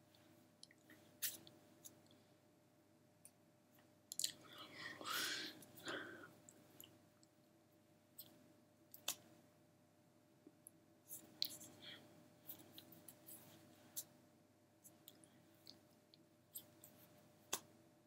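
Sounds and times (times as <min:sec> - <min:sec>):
soft breaths: 0:04.4 - 0:06.9, 0:11.0 - 0:14.1.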